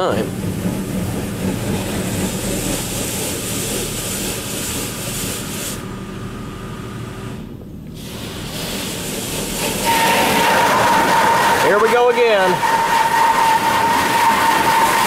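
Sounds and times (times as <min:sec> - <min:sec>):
low machine hum: 0:00.0 - 0:15.0
water spray hissing on vehicle: 0:01.6 - 0:05.9, 0:07.9 - 0:15.0.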